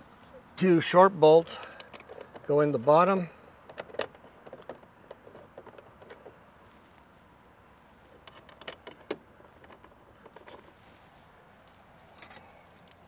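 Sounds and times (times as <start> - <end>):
bolts clicking and clinking: 1.6 - 2.9, 3.6 - 6.4, 8.0 - 10.8, 11.6 - 13.0.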